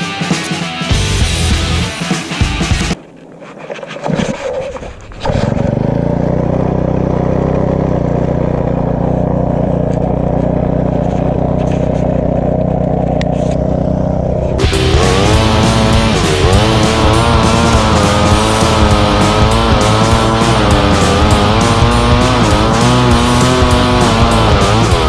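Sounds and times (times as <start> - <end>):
brushcutter engine starting and idling: 5.2 - 25.0.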